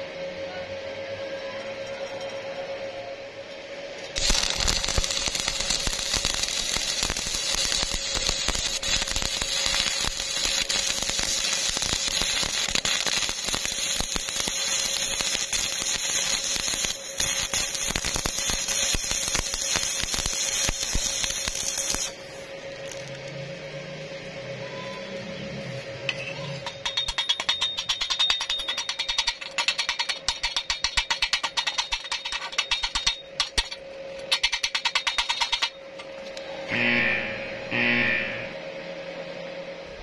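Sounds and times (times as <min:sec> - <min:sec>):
welding arc crackling and hissing: 0:04.1 - 0:23.5, 0:28.0 - 0:35.7, 0:36.7 - 0:38.6.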